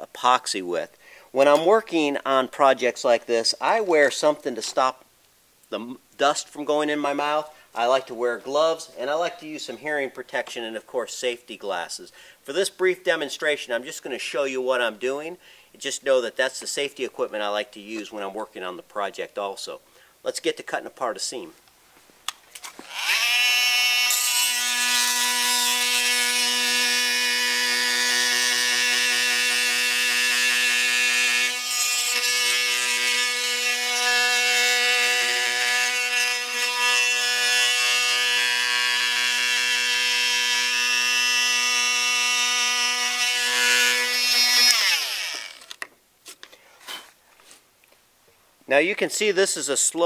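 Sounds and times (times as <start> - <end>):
oscillating multi-tool whining: 22.7 - 45.8.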